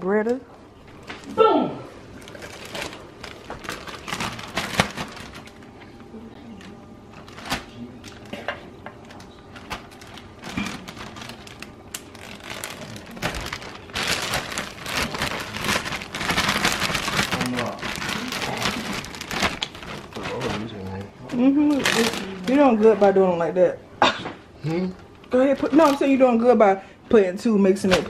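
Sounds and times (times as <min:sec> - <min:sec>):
plastic bag crinkling: 0:02.1 - 0:05.9, 0:06.5 - 0:08.4, 0:09.0 - 0:23.2, 0:25.0 - 0:26.4, 0:27.8 - 0:28.0.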